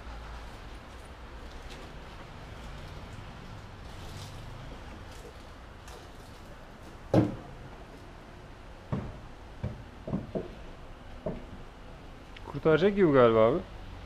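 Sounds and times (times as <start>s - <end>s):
tractor wheel knocking: 8.9s - 10.6s.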